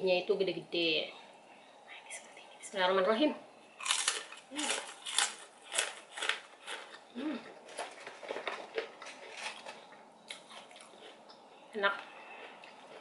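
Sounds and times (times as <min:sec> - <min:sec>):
crunchy chewing: 0:03.7 - 0:13.0
person humming: 0:07.2 - 0:07.5.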